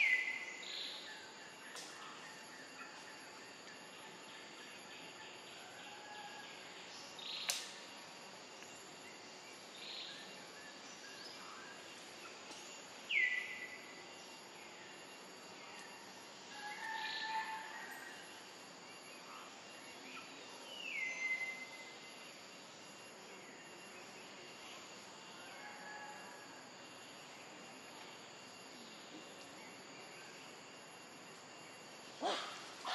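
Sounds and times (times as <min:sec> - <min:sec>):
sharp click: 0:07.4 - 0:07.8.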